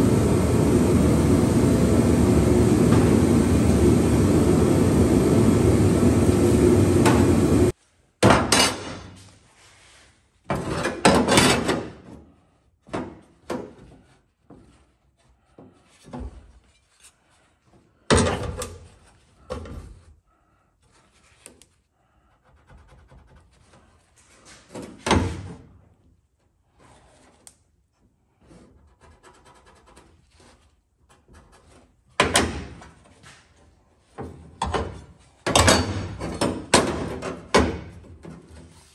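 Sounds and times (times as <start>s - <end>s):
steady loud noise: 0.0s - 7.7s.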